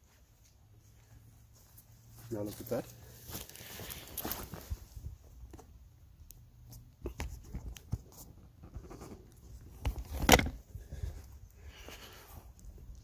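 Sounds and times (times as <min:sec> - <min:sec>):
camera handling rustles and scrapes: 0:07.0 - 0:11.0.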